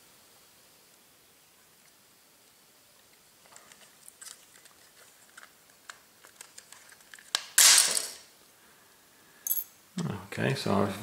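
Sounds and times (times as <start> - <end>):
loud plastic snap: 7.3 - 8.2.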